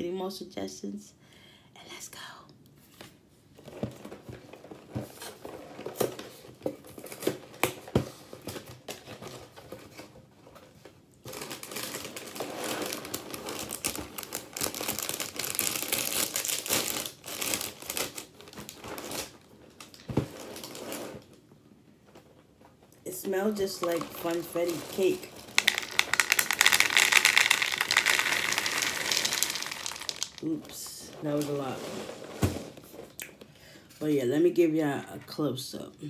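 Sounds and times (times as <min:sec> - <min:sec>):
plastic bag crinkling: 0:11.2 - 0:21.2, 0:23.3 - 0:32.3.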